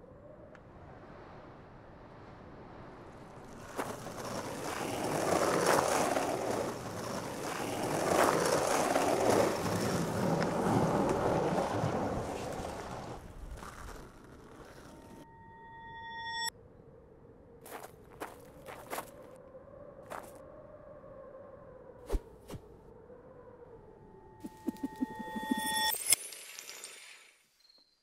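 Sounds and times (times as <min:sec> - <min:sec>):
skateboard wheels rolling on pavement: 0:00.7 - 0:15.2
ringing tone with overtones: 0:24.1 - 0:26.2.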